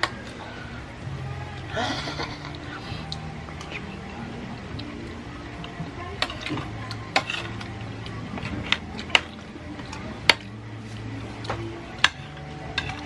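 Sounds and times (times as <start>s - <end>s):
cutlery scraping and clinking on plate: 6.2s - 13.0s.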